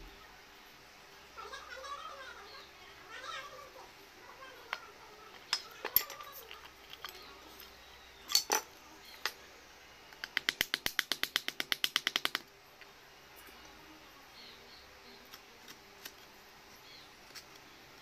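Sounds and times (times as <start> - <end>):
chisel clicking into wood: 10.2 - 12.4.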